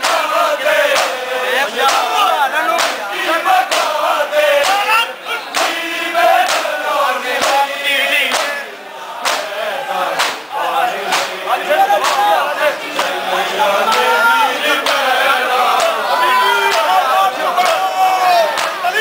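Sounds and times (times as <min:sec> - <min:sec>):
men chanting together: 0:00.0 - 0:19.0
chest-beating slaps: 0:02.8 - 0:03.0, 0:03.7 - 0:03.9, 0:05.5 - 0:05.8, 0:06.4 - 0:06.7, 0:07.4 - 0:07.6, 0:09.2 - 0:09.5, 0:10.2 - 0:10.5, 0:11.1 - 0:11.4.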